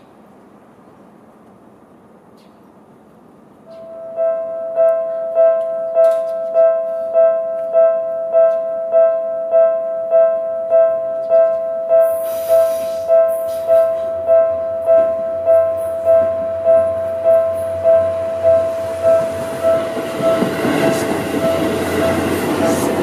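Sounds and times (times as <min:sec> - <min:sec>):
level crossing warning bell: 0:03.7 - 0:23.0
hiss: 0:12.1 - 0:13.8.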